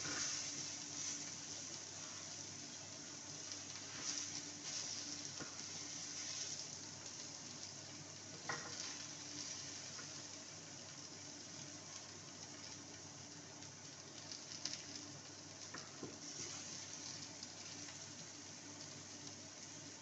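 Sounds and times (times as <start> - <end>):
wooden spatula scraping a pan: 0.0 - 2.4, 3.8 - 6.7
mushrooms sizzling in a pan: 0.0 - 20.0.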